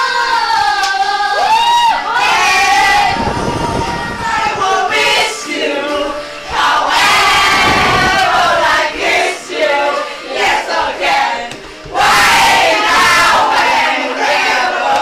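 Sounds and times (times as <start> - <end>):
young people shouting and shrieking: 0.0 - 5.3.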